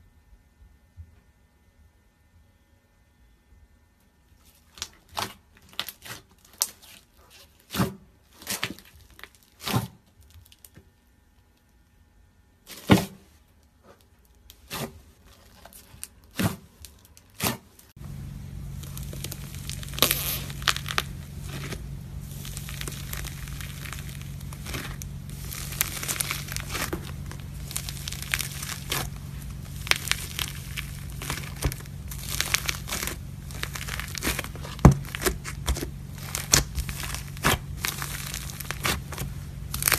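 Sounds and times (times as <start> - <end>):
beaded slime crackling and crunching: 4.4 - 10.8, 13.9 - 39.9
steady low hum: 13.5 - 39.9.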